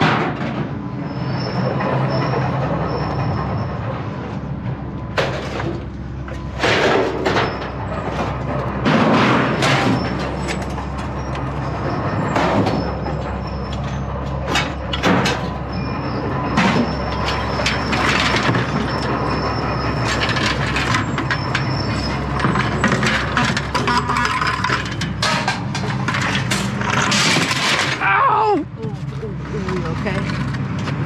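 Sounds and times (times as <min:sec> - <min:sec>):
scrap metal crashing: 0:00.0 - 0:00.9, 0:06.4 - 0:28.3.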